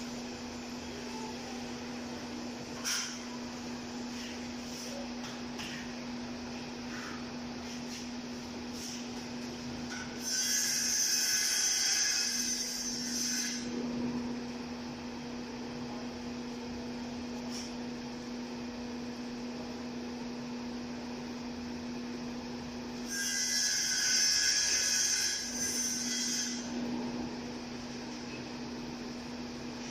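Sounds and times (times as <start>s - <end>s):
steady low hum: 0.0s - 10.3s, 11.4s - 23.1s, 24.3s - 29.9s.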